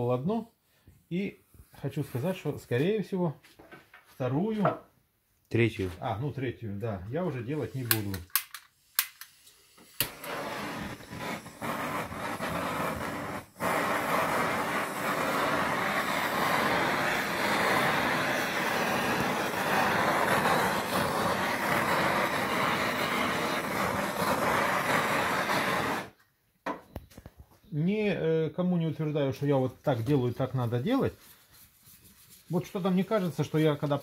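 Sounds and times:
gas torch flame hissing: 7.5s - 26.2s.

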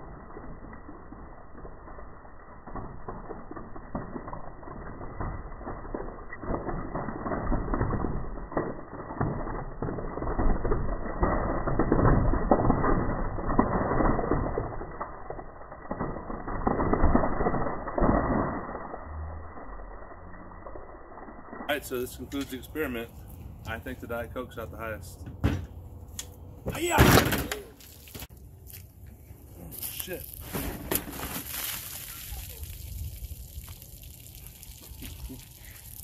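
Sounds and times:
droplets spattering down: 0.0s - 21.7s, 29.8s - 36.0s
soda foam fizzing and spraying: 29.8s - 36.0s.

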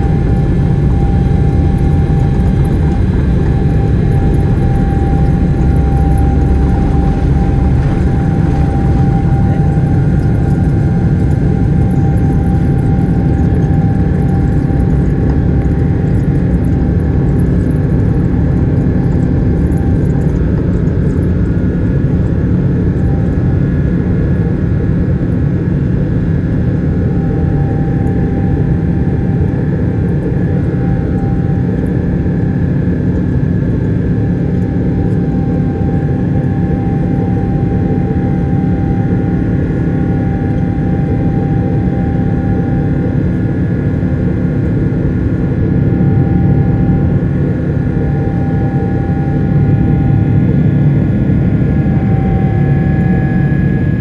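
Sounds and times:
deep rumble: 0.0s - 24.7s
engine whine: 0.0s - 54.0s
jet engine drone in cabin: 0.0s - 54.0s.

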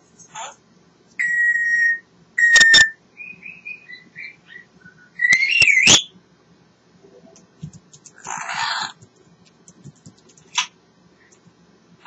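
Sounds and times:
parrot chirps: 1.2s - 6.1s
parrot whistling: 1.2s - 6.1s
sharp clicks: 7.6s - 8.2s.

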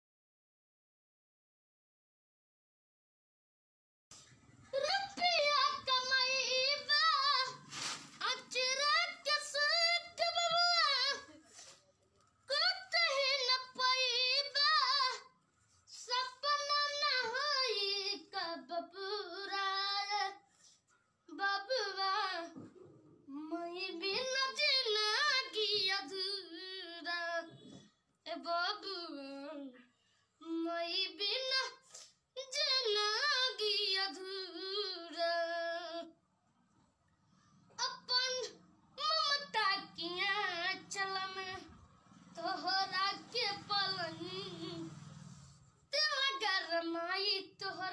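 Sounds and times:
boy singing unaccompanied: 4.7s - 11.8s, 12.5s - 20.4s, 21.3s - 22.6s, 23.3s - 29.8s, 30.4s - 36.1s, 37.8s - 41.7s, 42.3s - 45.0s, 45.9s - 47.9s.

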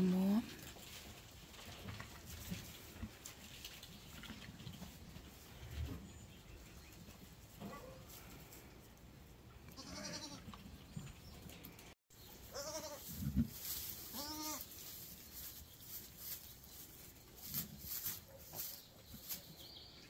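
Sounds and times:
sheep bleating: 9.7s - 10.4s, 12.5s - 13.0s.

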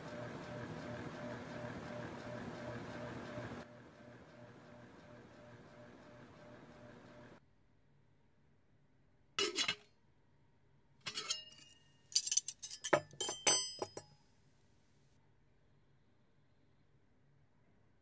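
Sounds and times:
light clinking with bright ring: 11.1s - 14.2s.

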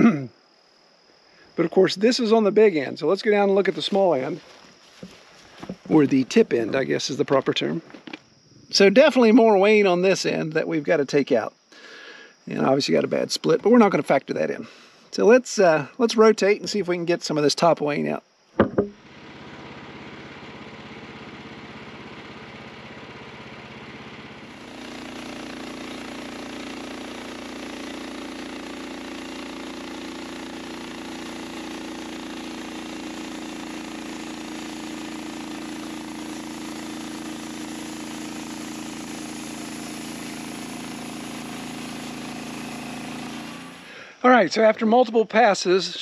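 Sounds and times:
band saw blade cutting log: 18.6s - 44.0s
sawmill gas engine running: 18.9s - 44.2s.

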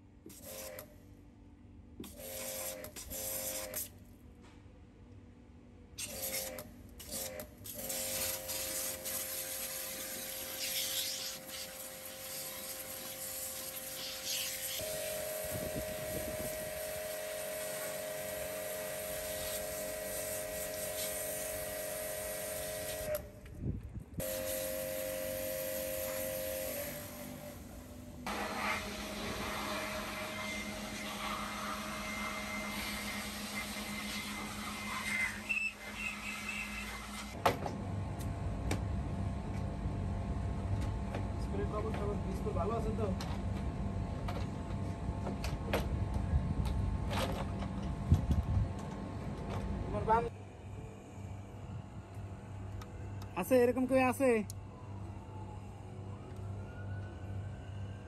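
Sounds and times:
water jet hissing: 7.8s - 23.2s, 28.3s - 35.1s
pressure washer motor whine: 7.8s - 23.3s, 24.2s - 37.4s.

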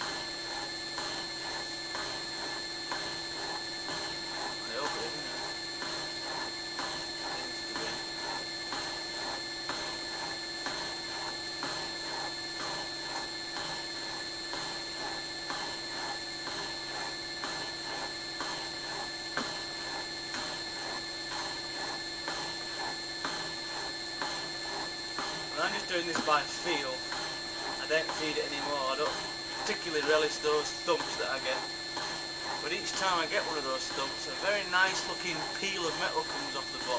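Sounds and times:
motor humming: 0.0s - 11.8s, 23.2s - 36.9s.

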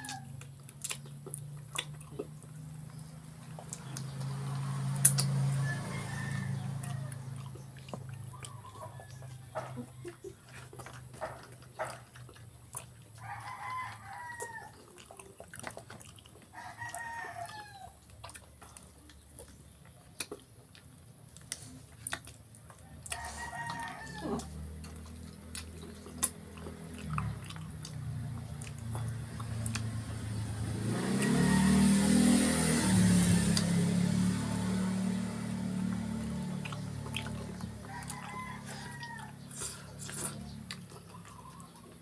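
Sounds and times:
rooster crowing: 0.0s - 0.4s, 4.6s - 10.2s, 13.2s - 14.9s, 16.5s - 18.0s, 22.8s - 24.8s, 30.6s - 36.6s, 37.2s - 39.9s
low engine rumble: 0.0s - 42.0s
wet chewing and lip-smacking: 0.0s - 42.0s.

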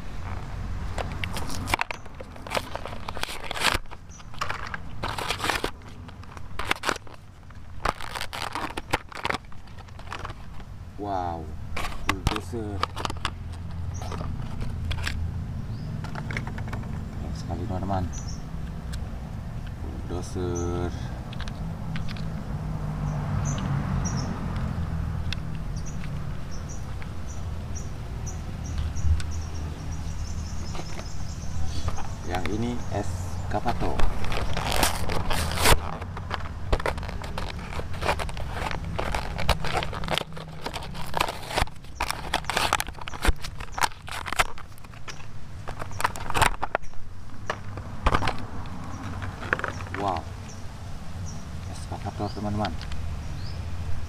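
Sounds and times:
plastic blister pack crackling: 0.3s - 10.7s, 30.8s - 50.2s
cardboard ripping: 1.1s - 10.6s, 33.8s - 46.8s.

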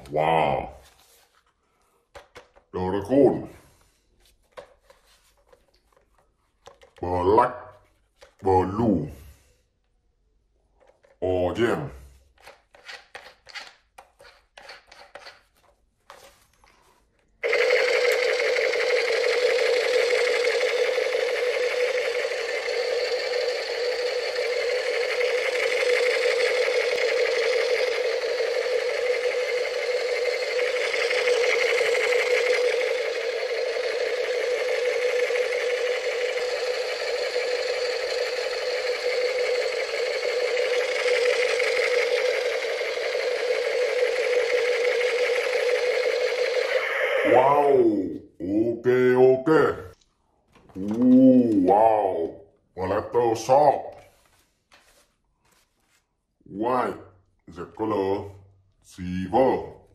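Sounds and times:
toy machine gun clicks: 17.4s - 47.4s
toy machine gun buzzing rattle: 17.4s - 47.7s.

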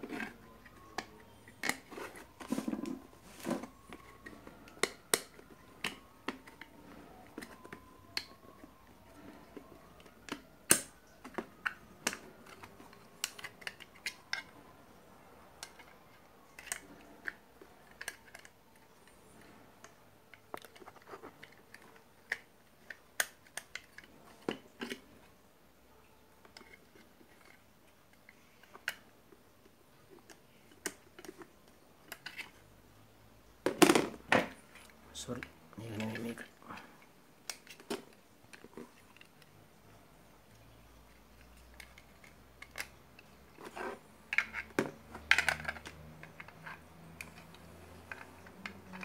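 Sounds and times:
plastic and metal clicks and knocks: 41.5s - 49.0s.

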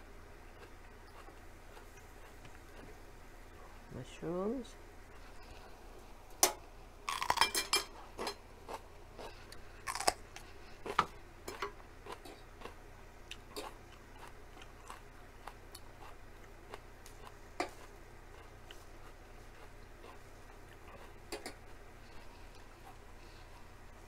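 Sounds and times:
chewing with moist mouth clicks: 0.5s - 3.0s, 8.2s - 23.0s.

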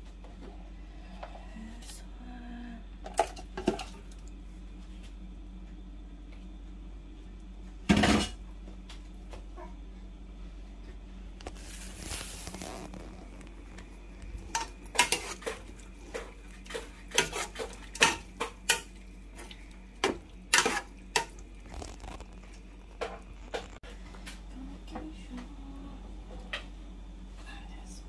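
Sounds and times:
metal spoon stirring in pot: 14.2s - 22.6s.

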